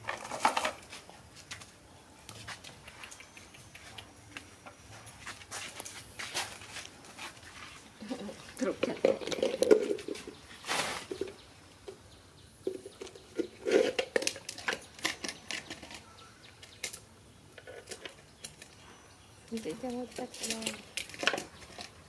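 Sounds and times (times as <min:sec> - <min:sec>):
sharp clicks: 0:02.6 - 0:04.5
plastic dipper scraping on concrete: 0:08.6 - 0:11.4, 0:12.7 - 0:16.0.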